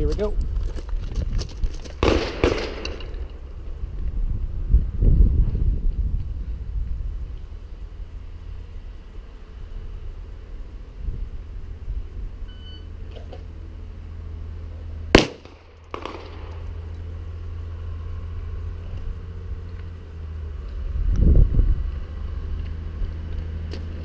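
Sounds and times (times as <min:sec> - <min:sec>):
low rumble: 0:00.0 - 0:24.0
pistol shot: 0:02.0 - 0:03.1, 0:15.1 - 0:16.6
short electronic beep: 0:12.5 - 0:12.9
faint gunshot report: 0:15.2 - 0:16.5.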